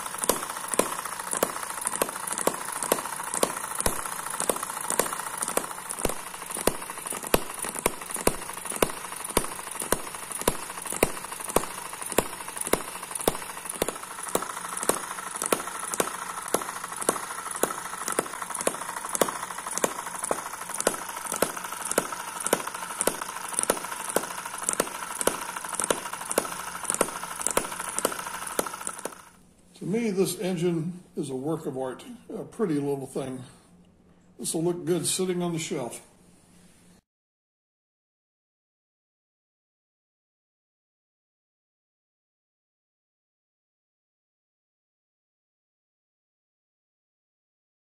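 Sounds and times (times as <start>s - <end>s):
engine whine: 0.0s - 29.4s
small engine clicking beat: 0.0s - 29.4s.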